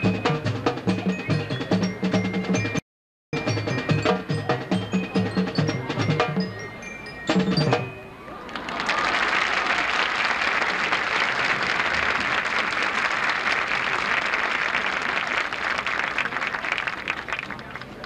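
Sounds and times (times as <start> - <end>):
audience applauding: 8.4 - 18.0.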